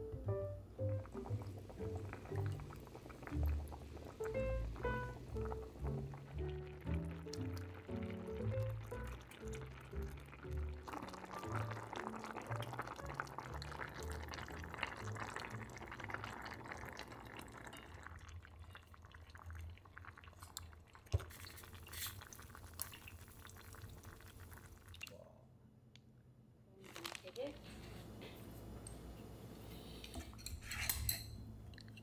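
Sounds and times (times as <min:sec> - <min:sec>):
stew bubbling in a pot: 0:00.1 - 0:25.3.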